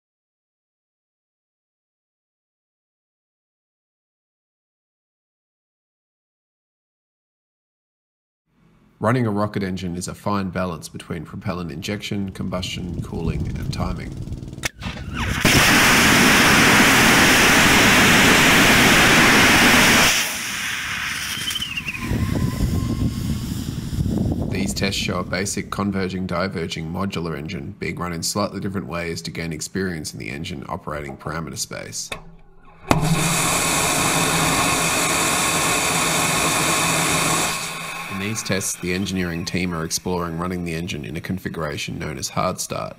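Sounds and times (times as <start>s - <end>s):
rocket engine firing: 12.9s - 25.1s, 32.1s - 40.1s.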